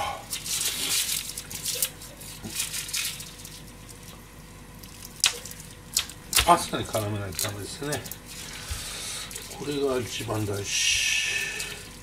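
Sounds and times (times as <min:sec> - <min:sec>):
garlic skins crackling: 0:04.8 - 0:12.0.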